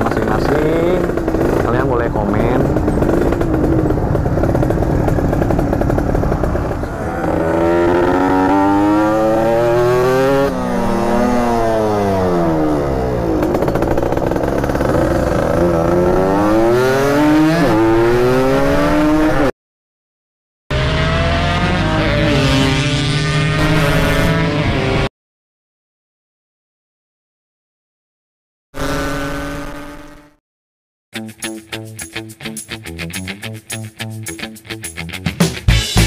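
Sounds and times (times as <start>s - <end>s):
moped engine revving: 0.0s - 19.5s, 20.7s - 25.1s, 28.8s - 30.4s.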